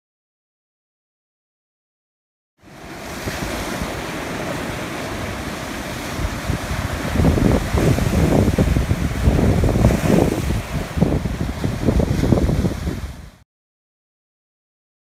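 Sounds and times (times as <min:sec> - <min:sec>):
sea surf breaking on rocks: 0:02.6 - 0:13.4
wind buffeting microphone: 0:02.8 - 0:13.4.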